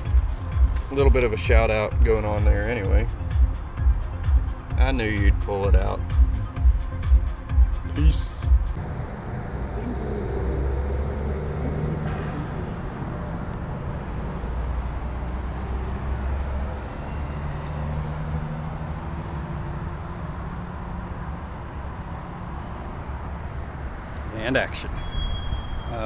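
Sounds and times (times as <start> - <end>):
vehicle engine rumble: 0.0 - 26.0.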